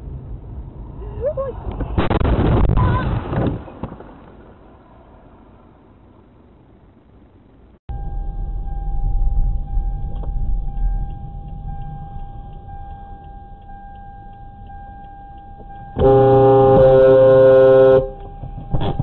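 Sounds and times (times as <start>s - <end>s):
vehicle road and engine rumble: 0.0s - 19.0s
low vehicle horn blaring: 15.6s - 19.0s.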